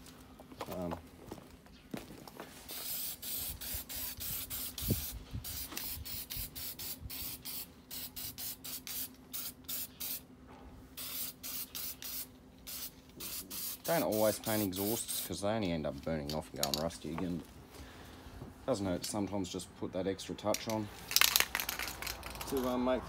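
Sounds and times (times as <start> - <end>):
spray can hissing: 2.7 - 10.2, 11.0 - 15.3.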